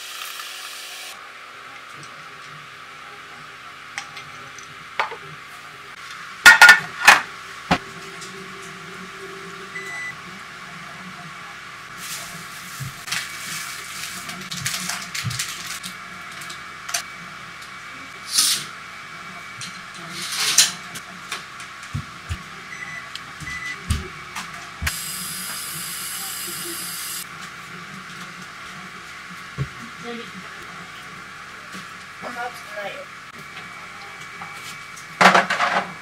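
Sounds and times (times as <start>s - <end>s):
tableware clinking: 6.5s - 7.3s.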